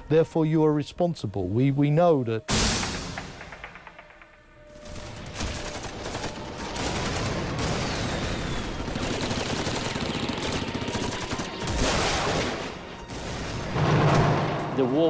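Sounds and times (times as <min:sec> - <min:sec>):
automatic gunfire: 0:05.0 - 0:12.6.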